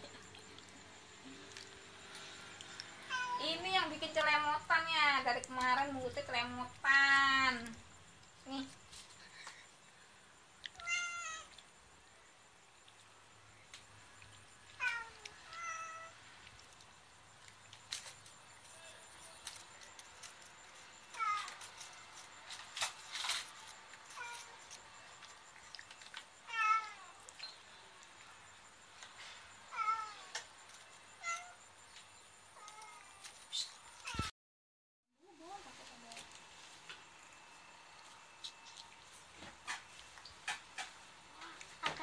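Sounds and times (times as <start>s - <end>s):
cat meowing: 10.8s - 11.5s, 14.8s - 16.2s.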